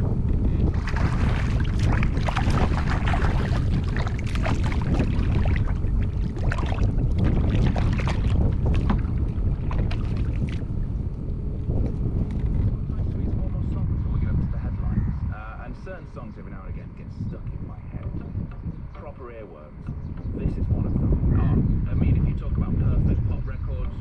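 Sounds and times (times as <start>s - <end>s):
wind buffeting microphone: 0.0s - 24.0s
water splashing against kayak hull: 0.6s - 10.9s.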